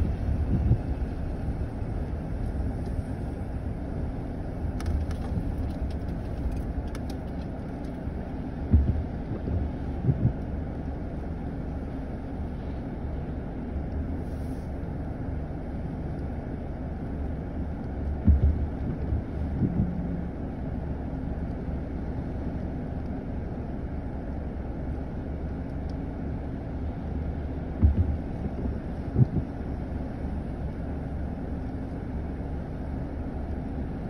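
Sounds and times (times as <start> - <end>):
car engine idling: 0.0 - 33.6
short low thumps: 8.7 - 10.5, 18.2 - 20.3, 27.8 - 29.6.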